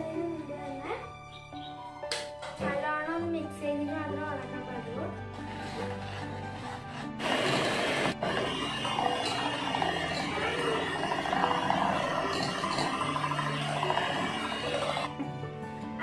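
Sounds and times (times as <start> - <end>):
electric hand mixer whipping cream: 5.3 - 15.1.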